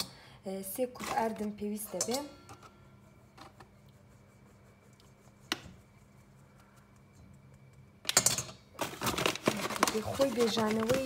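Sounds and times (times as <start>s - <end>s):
paper bag crinkling: 8.8s - 11.0s.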